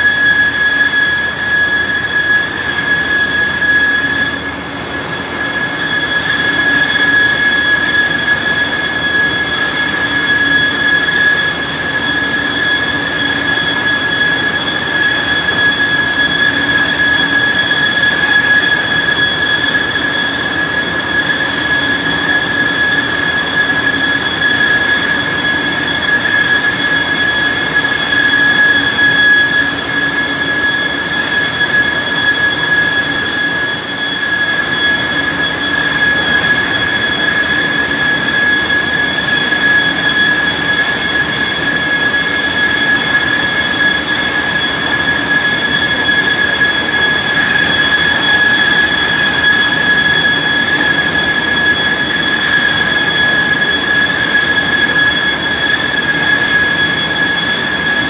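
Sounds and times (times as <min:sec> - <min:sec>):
planer machine whining: 0:35.9 - 0:58.0.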